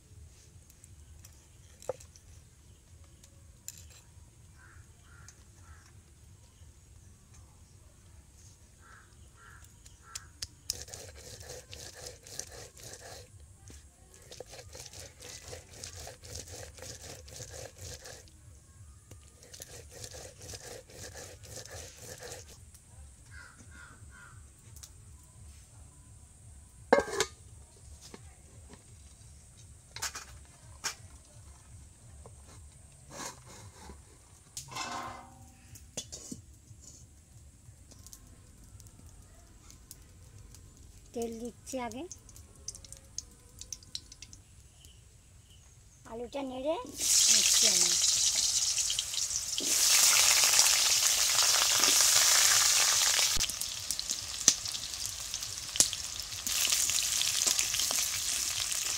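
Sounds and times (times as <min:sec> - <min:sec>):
stone roller grinding on stone: 0:10.7 - 0:13.3, 0:14.3 - 0:18.2, 0:19.4 - 0:22.6
metal cooking pots clanking: 0:27.0 - 0:27.4, 0:34.6 - 0:36.4.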